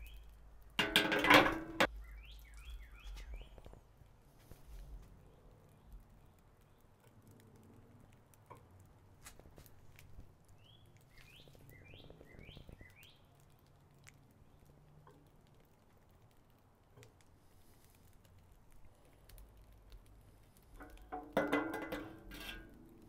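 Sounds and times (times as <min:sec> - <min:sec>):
bird chirping: 0:00.0 - 0:00.4, 0:01.8 - 0:03.8, 0:10.6 - 0:13.4.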